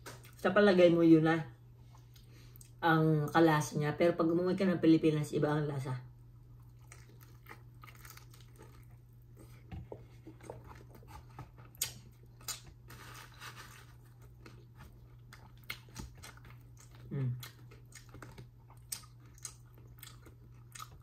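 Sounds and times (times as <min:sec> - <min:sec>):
low steady hum: 0:00.0 - 0:21.0
person chewing: 0:06.5 - 0:21.0
small crunches: 0:06.7 - 0:09.7, 0:10.4 - 0:21.0.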